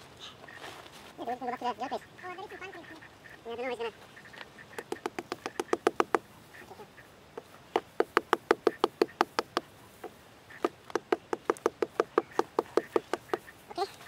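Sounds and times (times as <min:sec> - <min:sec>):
rapid sharp knocks: 0:04.8 - 0:06.3, 0:07.7 - 0:09.7, 0:10.5 - 0:13.5.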